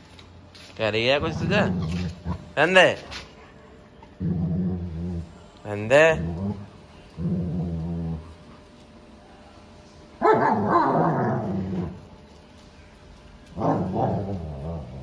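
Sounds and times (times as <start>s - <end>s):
dogs growling and snarling: 1.2s - 2.8s, 4.0s - 8.6s, 10.2s - 12.1s, 13.5s - 15.0s.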